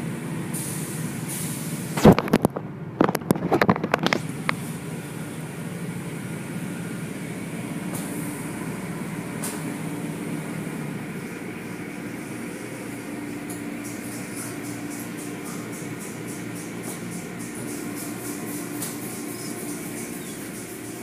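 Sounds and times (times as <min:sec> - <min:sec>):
car wash machinery humming: 0:00.0 - 0:21.0
water spraying: 0:11.2 - 0:21.0.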